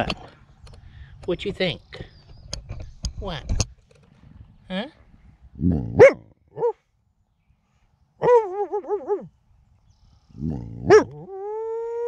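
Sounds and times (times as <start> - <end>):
coyote barking: 5.9 - 6.8, 10.8 - 11.4
coyote howling: 10.8 - 12.0.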